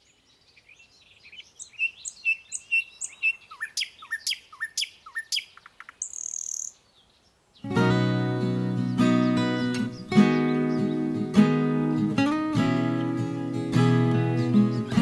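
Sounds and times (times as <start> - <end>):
small birds chirping: 0.0 - 15.0
acoustic guitar music: 7.6 - 15.0.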